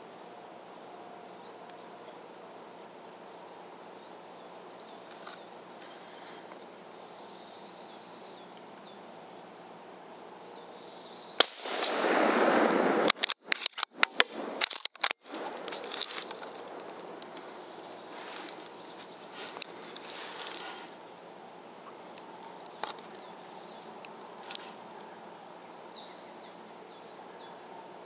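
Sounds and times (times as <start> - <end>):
faint birdsong: 0.0 - 11.6, 14.4 - 28.0
rifle shot: 11.4 - 15.4.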